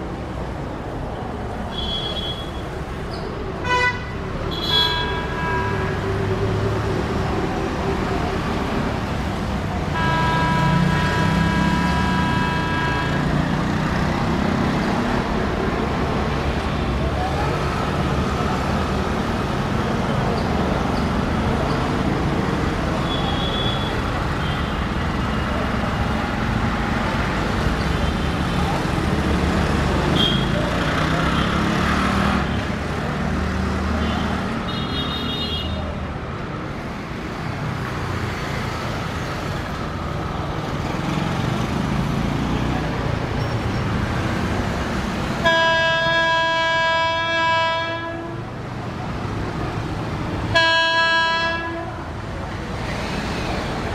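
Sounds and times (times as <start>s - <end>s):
city traffic rumble: 0.0s - 53.9s
multi-tone horn: 9.9s - 13.4s, 45.4s - 48.5s, 50.5s - 52.1s.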